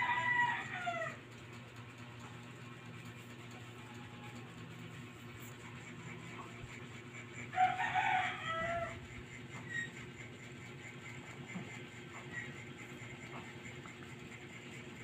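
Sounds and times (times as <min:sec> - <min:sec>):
rooster crowing: 0:00.0 - 0:01.2, 0:07.5 - 0:09.8
steady low hum: 0:00.0 - 0:15.0.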